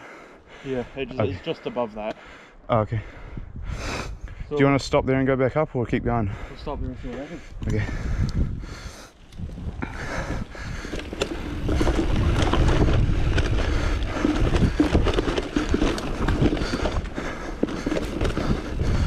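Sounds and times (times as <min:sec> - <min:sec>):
bike tyres rolling over dirt: 0:07.8 - 0:19.0
bike knocks and rattles: 0:10.6 - 0:19.0.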